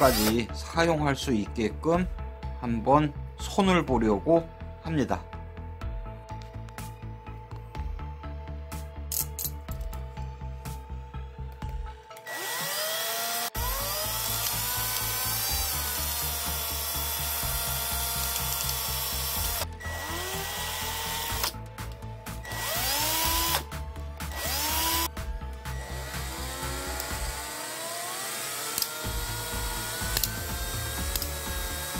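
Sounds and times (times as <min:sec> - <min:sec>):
cordless drill motor whining: 0:00.0 - 0:00.4, 0:12.1 - 0:21.6, 0:22.4 - 0:31.9
background music: 0:00.0 - 0:31.9.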